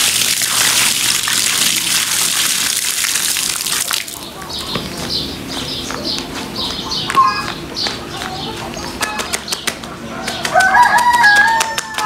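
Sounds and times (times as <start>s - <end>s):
small birds chirping: 4.0s - 11.0s
rooster crowing: 10.1s - 12.0s.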